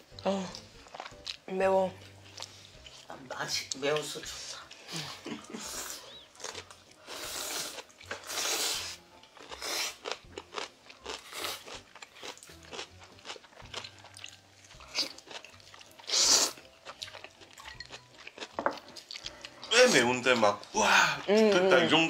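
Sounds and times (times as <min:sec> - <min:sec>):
chewing with crunches: 0:00.1 - 0:03.1, 0:03.7 - 0:21.7
noodles slurped: 0:07.0 - 0:10.0.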